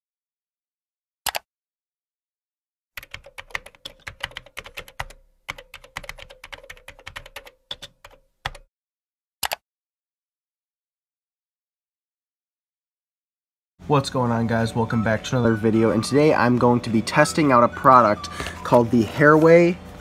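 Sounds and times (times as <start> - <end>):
laptop keyboard typing: 3.0 - 8.7.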